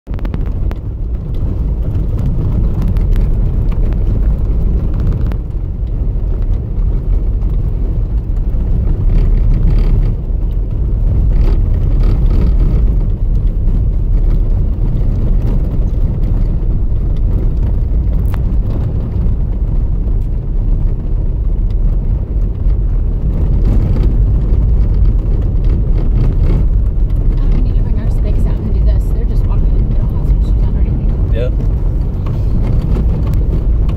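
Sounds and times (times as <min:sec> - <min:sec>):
vehicle driving on snow: 0:00.1 - 0:33.9.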